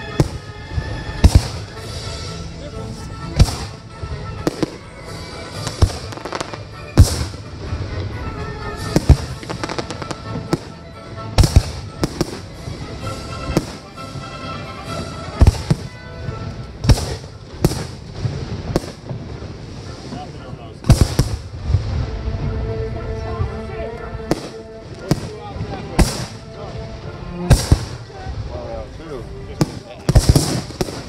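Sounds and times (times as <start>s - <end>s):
firework shells booming: 0.0s - 2.4s, 3.2s - 8.2s, 8.8s - 14.3s, 14.9s - 22.1s, 24.3s - 28.3s, 29.5s - 31.0s.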